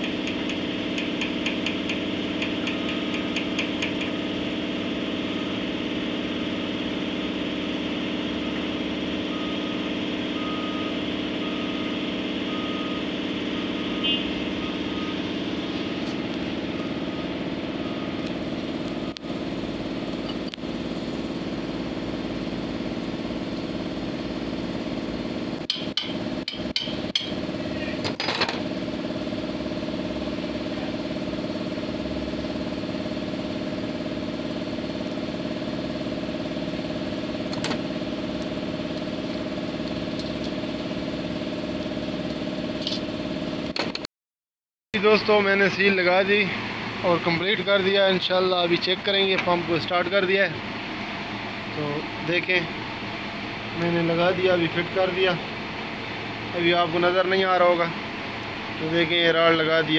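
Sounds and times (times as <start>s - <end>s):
sharp metallic clicks and knocks: 0.0s - 4.2s, 25.6s - 27.4s
truck diesel engine idling: 0.0s - 25.6s, 28.7s - 43.5s, 45.0s - 59.9s.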